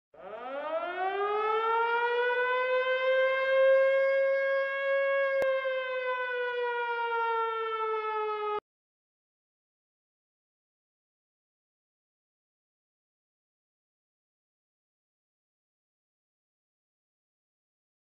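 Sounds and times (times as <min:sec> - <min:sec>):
air-raid siren: 0:00.2 - 0:08.6.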